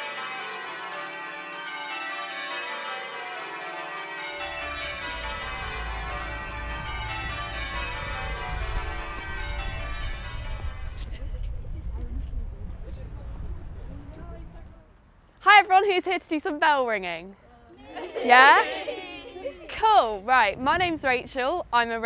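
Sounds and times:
church bells ringing: 0:00.0 - 0:11.2
low rumble: 0:04.4 - 0:15.0.

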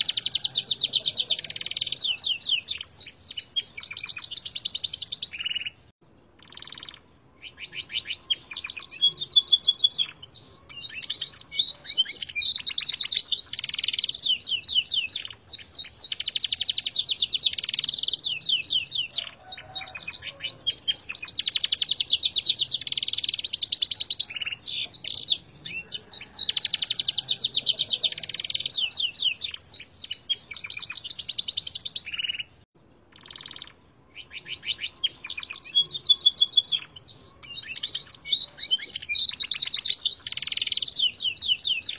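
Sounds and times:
canary singing trills: 0:00.0 - 0:41.9.

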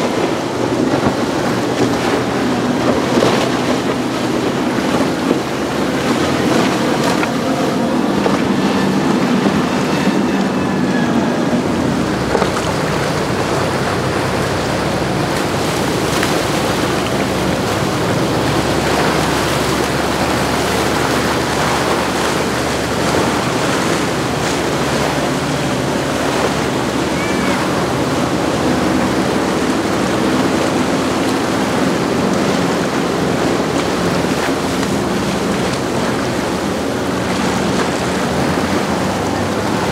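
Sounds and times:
outboard boat engines droning: 0:00.0 - 0:39.9
waves breaking: 0:00.0 - 0:39.9
wind buffeting microphone: 0:00.0 - 0:39.9.

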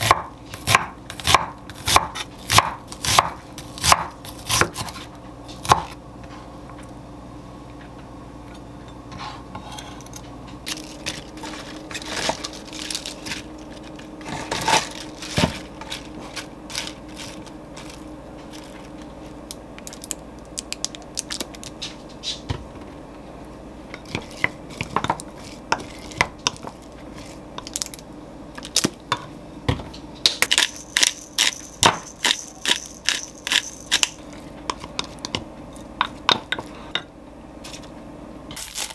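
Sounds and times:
utensils and dishes clinking: 0:30.4 - 0:34.4.

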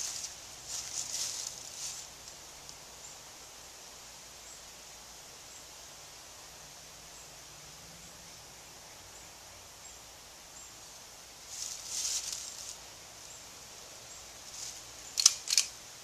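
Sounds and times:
faint high insect drone: 0:00.0 - 0:16.0
brief rustle: 0:14.5 - 0:15.7
sharp double click of handling: 0:15.2 - 0:15.7.

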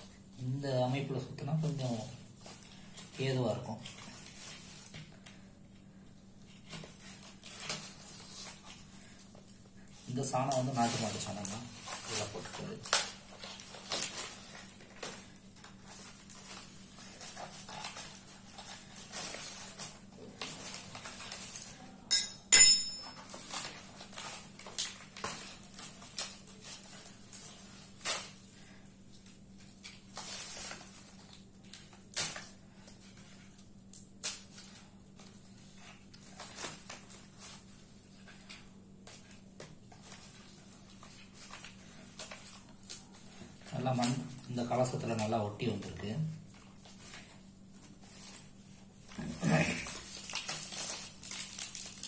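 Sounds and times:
metal tool clinking on tiles: 0:22.1 - 0:23.2.

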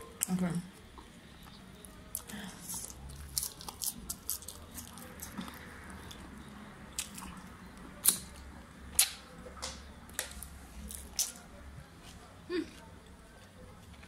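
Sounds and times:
soft wet chewing: 0:00.0 - 0:14.0
lip and finger-licking smacks: 0:08.9 - 0:10.3.

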